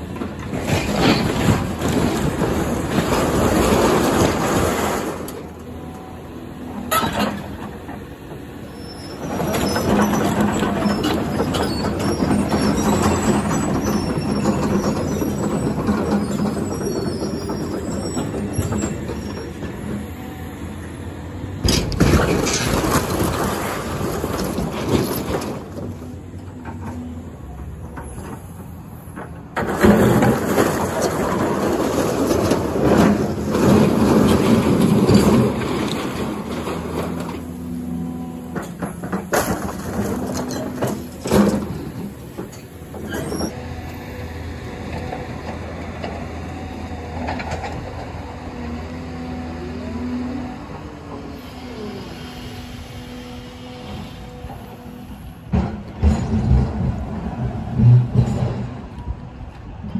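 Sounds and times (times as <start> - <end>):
excavator engine hum: 0.0 - 59.9
debris crunching and crashing: 0.4 - 5.6, 21.6 - 26.0, 29.6 - 37.4, 38.8 - 42.4.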